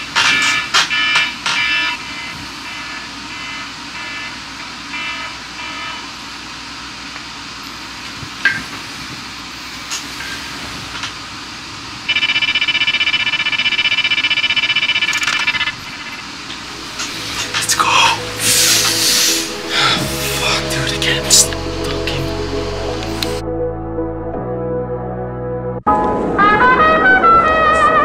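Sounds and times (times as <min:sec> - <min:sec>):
loud fluttering alarm tone: 0:00.4 - 0:06.2, 0:12.1 - 0:21.8.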